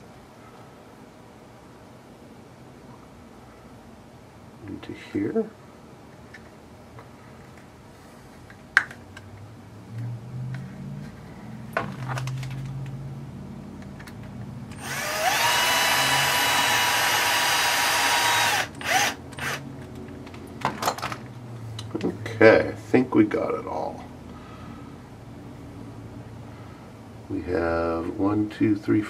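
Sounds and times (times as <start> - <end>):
drill motor whine: 14.8 - 19.6.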